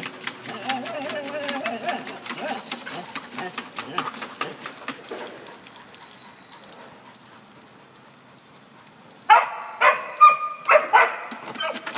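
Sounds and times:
dog barking: 9.3s - 11.8s.

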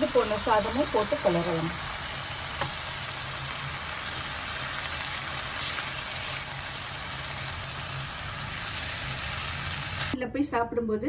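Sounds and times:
food sizzling in a frying pan: 0.0s - 10.2s.

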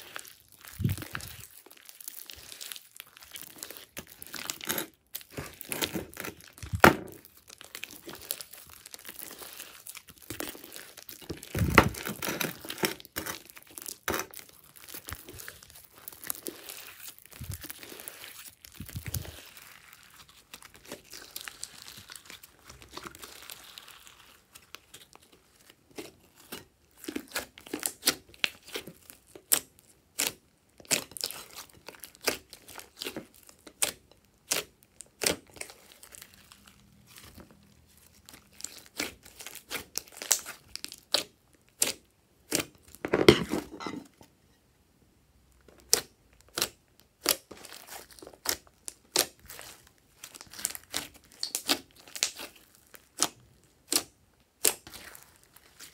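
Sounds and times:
slime crackling and popping: 0.0s - 43.1s, 45.8s - 55.9s.

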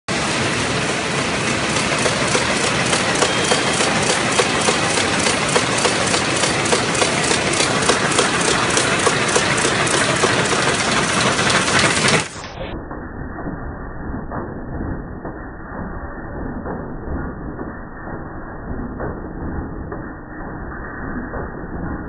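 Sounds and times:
machine rattle and whir: 0.1s - 22.0s
regular machine clicking: 1.4s - 12.6s.

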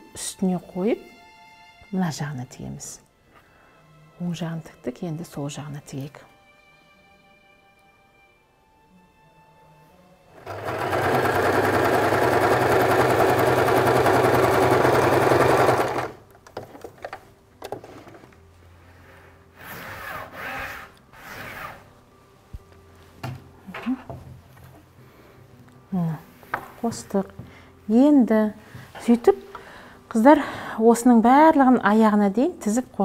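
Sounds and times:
sewing machine stitching: 10.4s - 16.2s.

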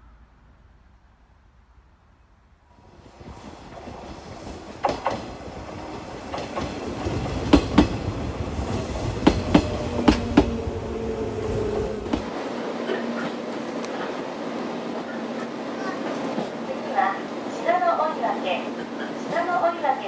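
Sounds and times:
electric train passing: 0.0s - 20.0s
wheels clacking over rail joint: 3.7s - 8.1s, 8.7s - 12.3s.

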